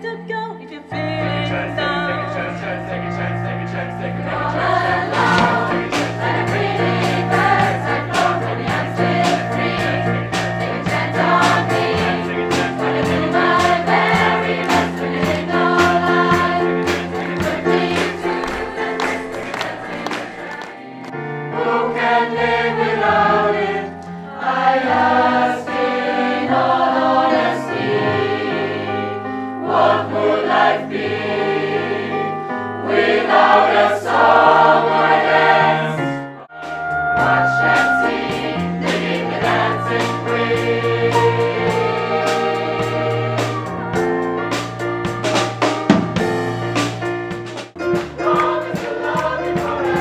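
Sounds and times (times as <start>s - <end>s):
keyboard piano: 0.0s - 50.0s
mixed choir singing: 0.9s - 47.0s, 47.6s - 50.0s
drum kit playing: 3.0s - 21.1s, 36.5s - 50.0s.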